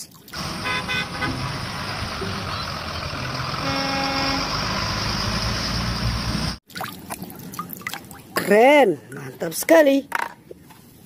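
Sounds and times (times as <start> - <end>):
road noise: 0.0 - 6.6
vehicle horn: 0.4 - 1.6, 3.6 - 4.6
bus engine rumbling: 0.4 - 6.6.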